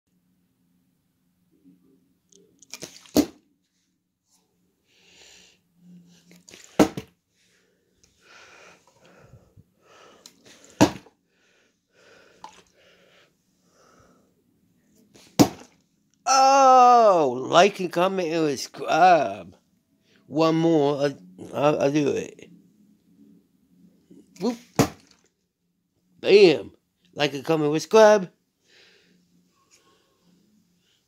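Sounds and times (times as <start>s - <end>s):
plastic bottle landing on carpet: 6.5s - 7.1s, 10.8s - 11.1s, 15.2s - 15.8s, 24.7s - 25.2s.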